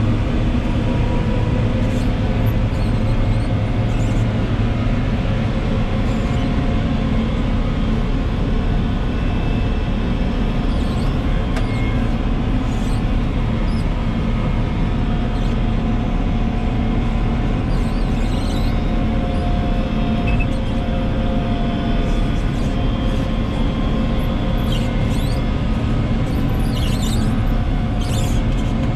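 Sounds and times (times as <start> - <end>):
diesel farm machinery running: 0.0 - 28.9.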